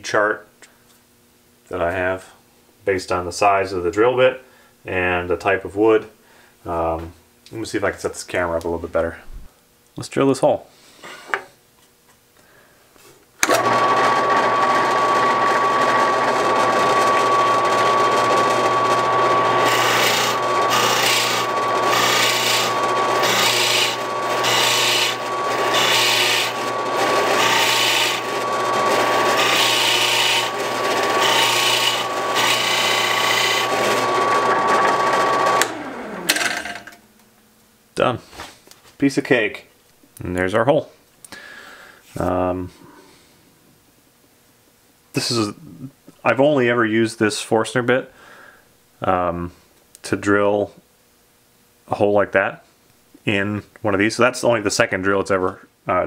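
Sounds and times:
drill bit cutting wood: 13.4s - 36.6s
drill press motor running: 13.4s - 37.0s.

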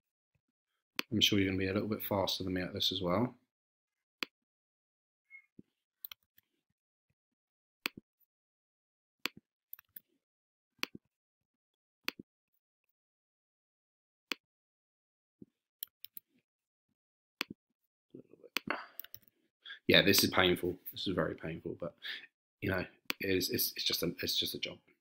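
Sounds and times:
computer mouse clicking: 19.0s - 19.2s.

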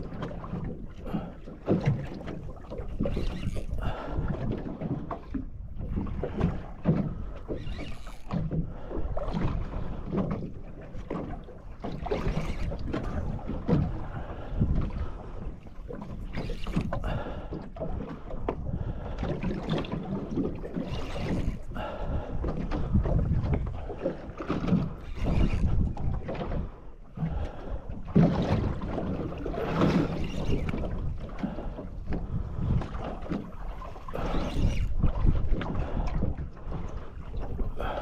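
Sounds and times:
water slapping against boat hull: 0.0s - 38.0s
wind gusting over microphone: 12.1s - 38.0s.

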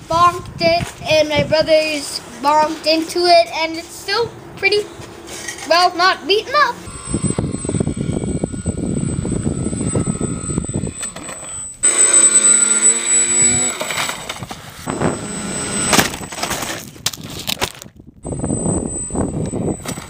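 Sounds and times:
wind rush: 0.0s - 2.7s, 6.8s - 11.9s, 14.2s - 20.0s
electric motor whine: 3.8s - 17.5s, 18.2s - 20.0s.

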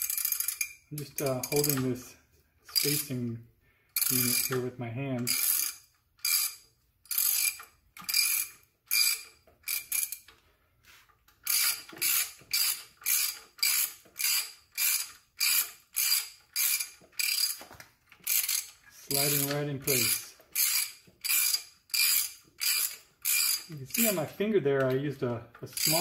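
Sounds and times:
ratchet wrench clicking: 0.0s - 1.9s, 2.7s - 3.1s, 4.0s - 4.6s, 5.2s - 10.4s, 11.4s - 17.6s, 18.2s - 24.2s, 25.6s - 26.0s.

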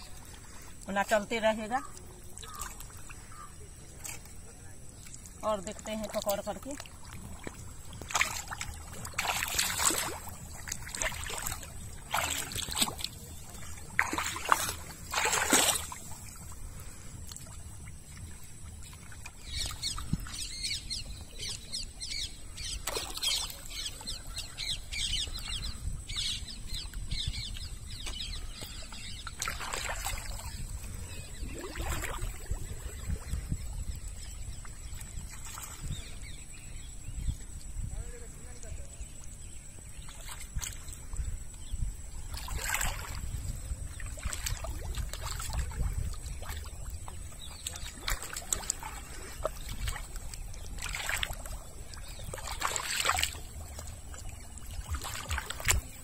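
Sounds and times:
hands splashing in water: 6.1s - 16.4s, 29.4s - 30.6s, 47.4s - 56.0s.

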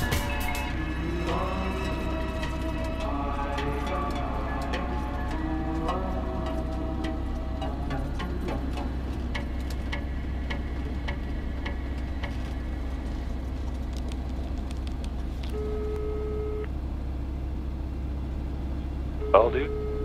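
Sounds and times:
two-pitch beep: 19.2s - 20.0s.

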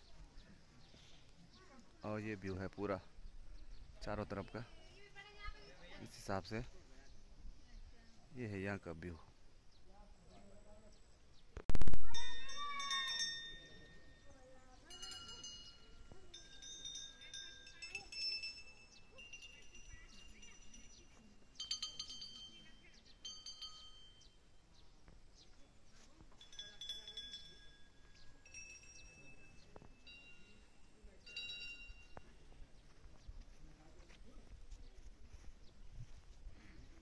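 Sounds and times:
brass bells ringing: 12.2s - 24.3s.

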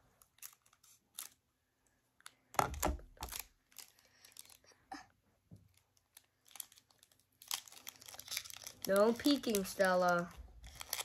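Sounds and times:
foil wrapper crinkling and tearing: 0.0s - 1.4s, 3.1s - 4.7s, 5.7s - 11.0s.

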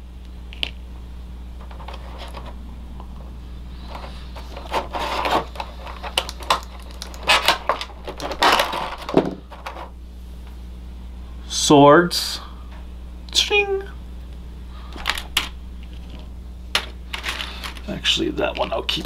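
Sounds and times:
steady low hum: 0.0s - 19.0s
plastic packaging crackling: 4.4s - 9.8s.

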